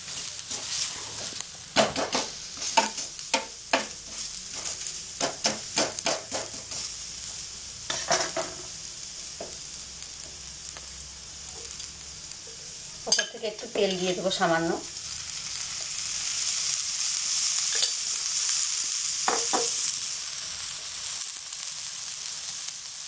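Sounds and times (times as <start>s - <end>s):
pancake sizzling in oil: 0.0s - 23.0s
spatula scraping a pan: 0.1s - 3.2s, 3.8s - 7.0s.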